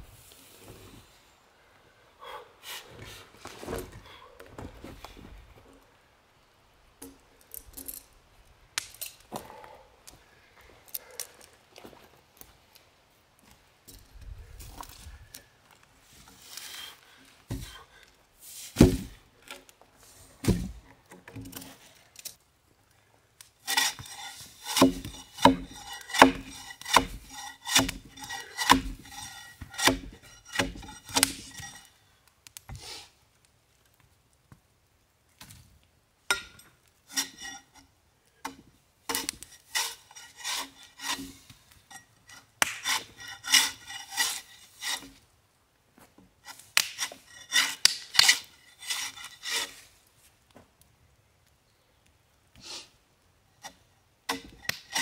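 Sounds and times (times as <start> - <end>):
bark spud scraping bark off log: 23.6 - 31.8, 39.1 - 41.4, 42.3 - 45.2.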